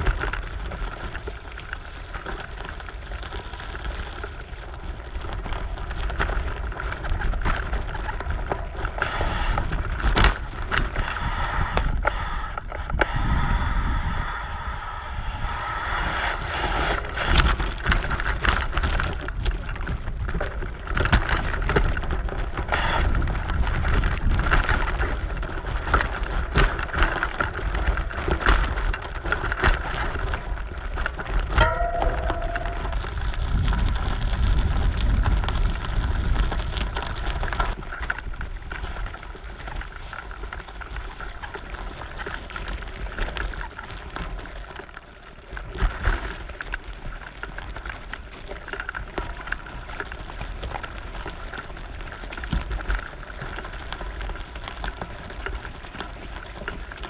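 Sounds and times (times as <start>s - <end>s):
bicycle rattles and knocks: 0.0s - 57.0s
wind rumble on microphone: 0.0s - 57.0s.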